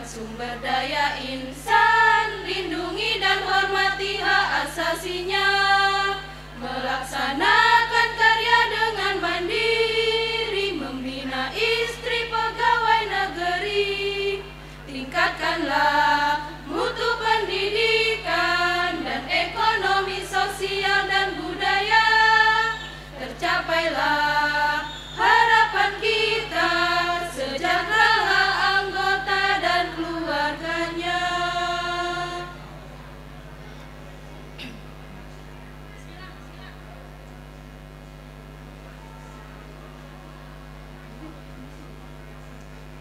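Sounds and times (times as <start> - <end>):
women's choir singing: 0.0 - 32.7.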